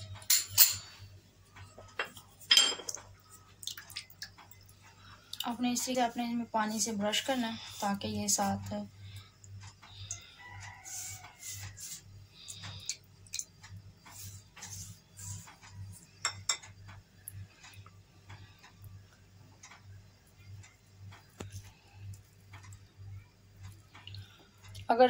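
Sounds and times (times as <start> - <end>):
pastry brush dabbing dough: 5.5 - 8.9, 10.4 - 12.8, 13.5 - 16.3.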